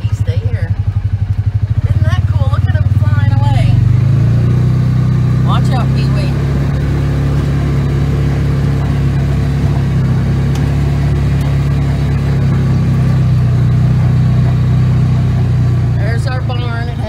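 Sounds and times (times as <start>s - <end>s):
utility vehicle engine running: 0.0s - 17.0s.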